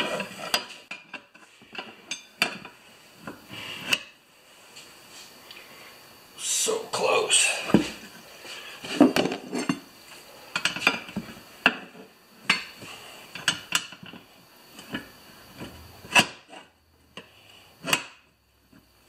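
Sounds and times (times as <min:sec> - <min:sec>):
tire iron clicking and scraping: 0:10.5 - 0:19.0.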